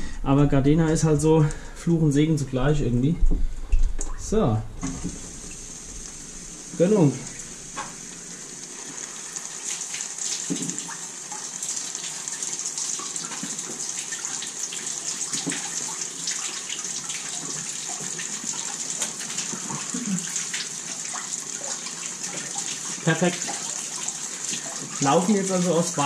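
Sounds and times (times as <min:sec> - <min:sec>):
water flowing: 0:00.0 - 0:26.0
water splashing and dripping: 0:03.3 - 0:26.0.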